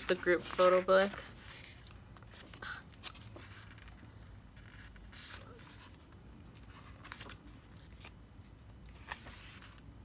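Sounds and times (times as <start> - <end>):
paper pages rustling: 0.0 - 8.2, 8.9 - 9.9.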